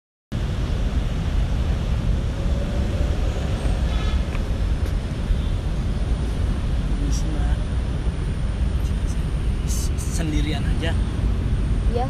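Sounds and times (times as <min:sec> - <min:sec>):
steady low rumbling: 0:00.3 - 0:12.0.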